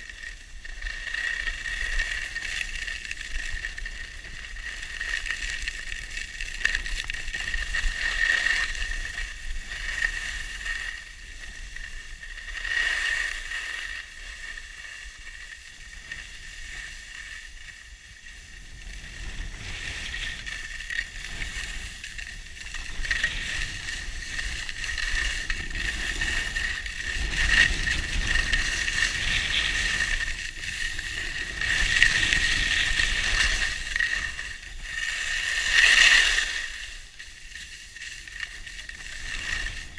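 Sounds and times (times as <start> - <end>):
skis scraping over snow: 0.0 - 39.9
wind rumbling on microphone: 0.0 - 39.9.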